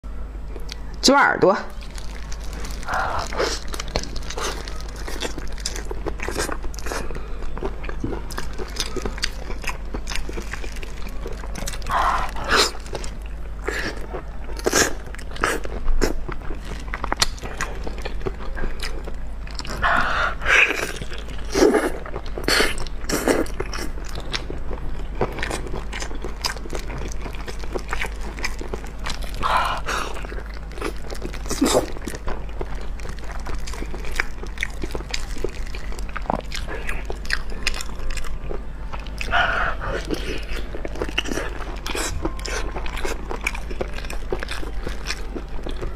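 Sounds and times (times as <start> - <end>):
low hum: 0.0 - 45.9
biting and chewing: 1.7 - 45.9.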